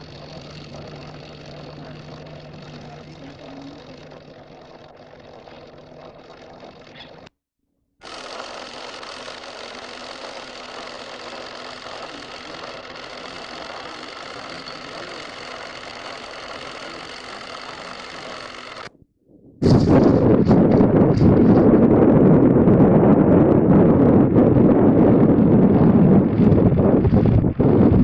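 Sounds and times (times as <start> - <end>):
film projector whirring clatter: 0.0 - 7.3, 8.0 - 18.9.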